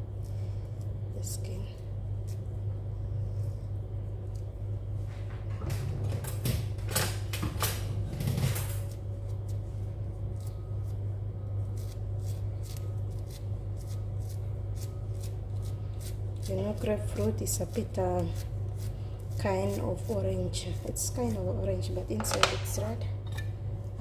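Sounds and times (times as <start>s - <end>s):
steady low hum: 0.0s - 24.0s
peeler scraping fruit pith: 10.2s - 22.9s.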